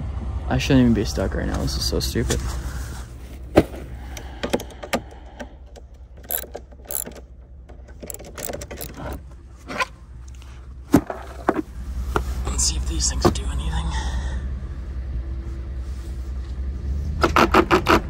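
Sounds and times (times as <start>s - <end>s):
metal and plastic knocks: 5.7s - 9.2s
ratchet wrench clicking: 6.2s - 7.3s, 7.9s - 9.2s.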